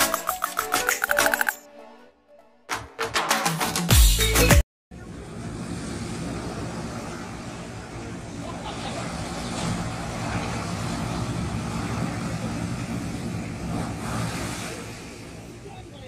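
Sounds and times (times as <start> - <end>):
waves breaking on beach: 5.4 - 16.0.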